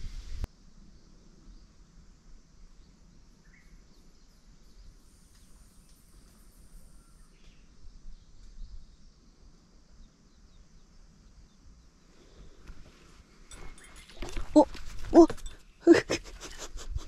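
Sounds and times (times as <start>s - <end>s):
faint bird chirps: 2.6s - 12.6s, 13.5s - 14.8s
high insect-like buzz: 3.5s - 7.7s.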